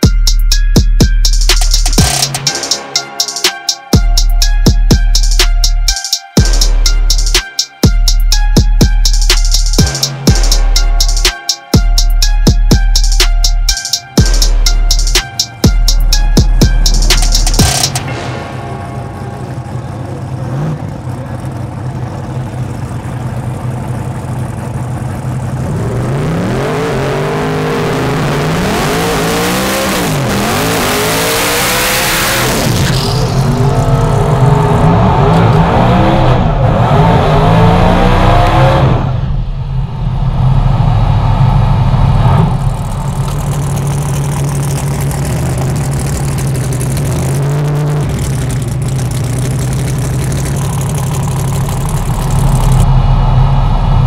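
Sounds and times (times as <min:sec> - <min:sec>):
race car engine revving: 0:18.9 - 0:54.0.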